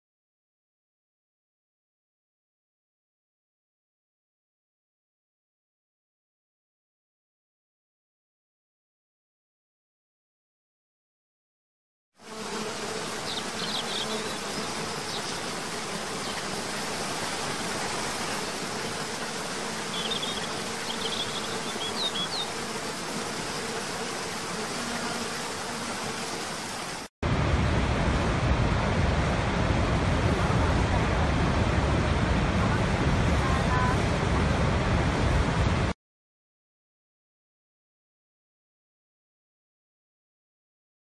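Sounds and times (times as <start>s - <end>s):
waterfall rushing: 26.3s - 35.9s.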